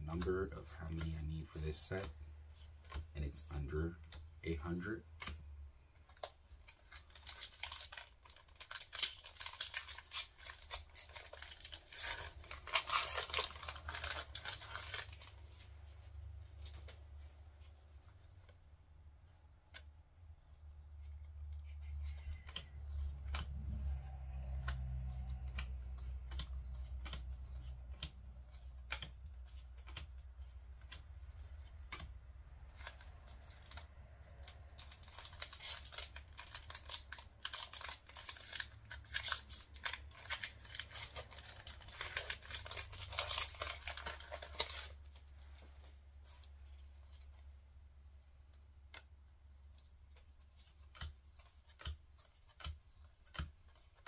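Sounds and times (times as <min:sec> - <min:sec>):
foil wrapper crinkling: 0:06.1 - 0:16.8, 0:32.6 - 0:46.5
wrapper tearing open: 0:06.2 - 0:15.4, 0:32.7 - 0:45.6
cards clicking as flipped: 0:22.2 - 0:45.0, 0:48.8 - 0:54.0.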